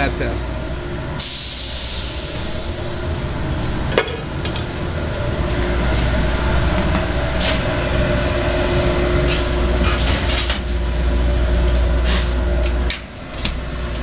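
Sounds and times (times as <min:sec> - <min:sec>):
shop machinery drone: 0:00.0 - 0:14.0.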